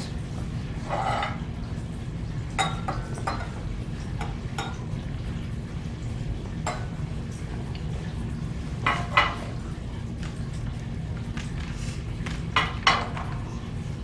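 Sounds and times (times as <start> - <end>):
low room hum: 0.0 - 14.0
glassware clinking: 0.8 - 1.5, 2.6 - 3.6, 4.2 - 4.9, 8.8 - 9.6.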